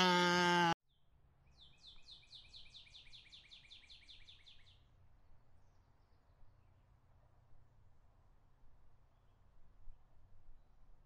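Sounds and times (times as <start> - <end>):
sheep bleating: 0.0 - 0.8
songbird trill: 0.9 - 4.8.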